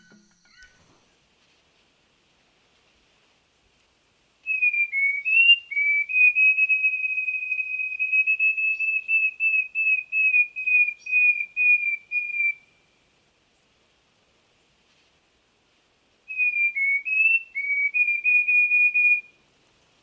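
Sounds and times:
bird whistling song: 4.4 - 12.8, 16.3 - 19.4.

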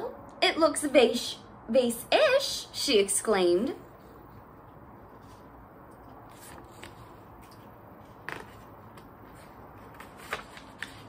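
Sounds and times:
paper pages rustling: 5.0 - 11.0.

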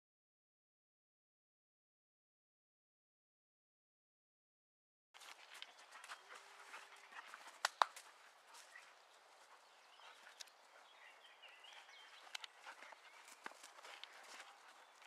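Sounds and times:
paws and boots scuffling on sand: 5.2 - 15.0
faint chirping: 5.6 - 15.0.

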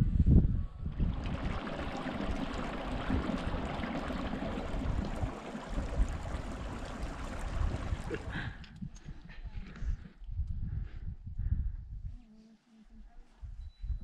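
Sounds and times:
stream flowing over rocks: 1.4 - 8.3.

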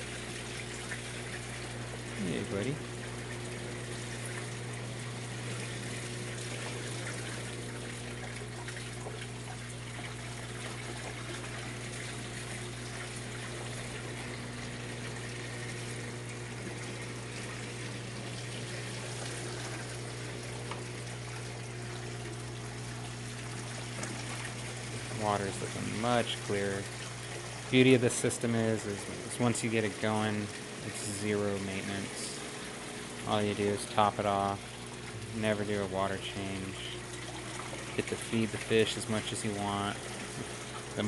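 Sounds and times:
pump electric hum: 0.0 - 41.0
water splashing into tank: 0.0 - 41.0.

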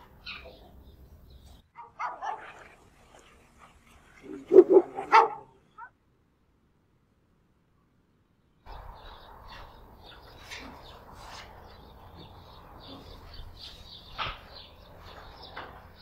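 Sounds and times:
dog barking: 1.8 - 2.6, 4.6 - 5.9.

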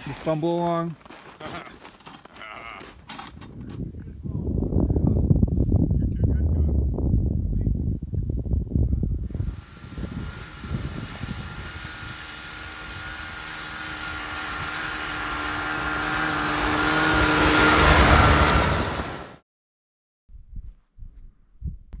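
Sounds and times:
snowmobile engine approaching: 0.0 - 3.0, 9.3 - 19.4
wind buffeting microphone: 2.9 - 19.2.

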